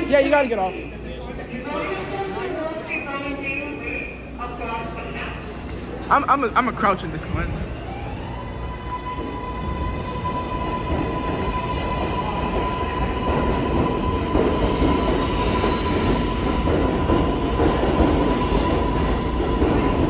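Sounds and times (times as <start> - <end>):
train wheels rumbling on rails: 6.6 - 20.0.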